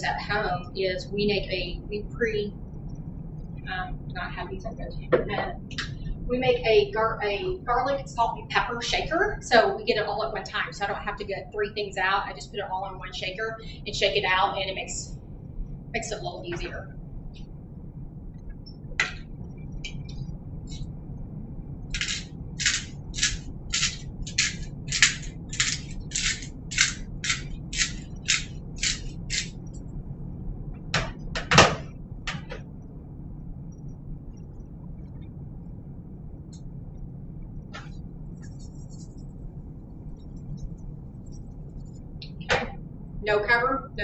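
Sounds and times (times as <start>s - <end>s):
shaker being shaken: 21.9s - 29.6s, 38.3s - 42.1s.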